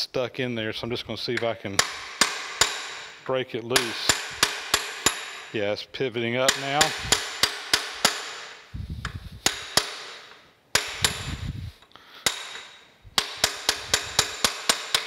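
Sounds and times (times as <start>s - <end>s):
hammer tapping metal: 1.4s - 5.6s, 6.4s - 11.5s, 12.2s - 15.0s
low rumbles: 11.0s - 11.8s.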